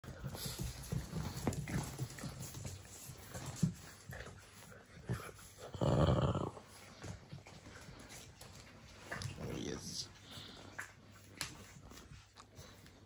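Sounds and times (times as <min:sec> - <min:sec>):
clicks of paws and mouths: 0:10.6 - 0:13.0.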